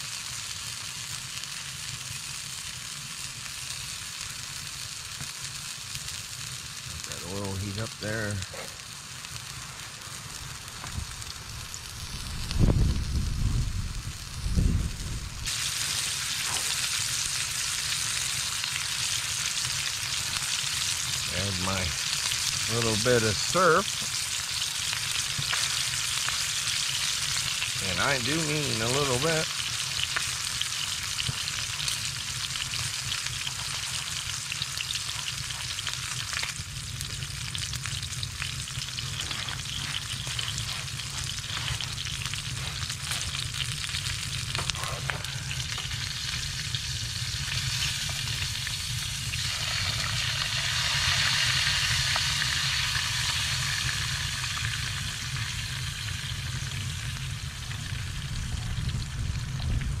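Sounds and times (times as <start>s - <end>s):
steak sizzling in frying pan: 0.0s - 60.0s
steady low rumble: 9.6s - 18.9s, 30.8s - 51.6s, 53.4s - 60.0s.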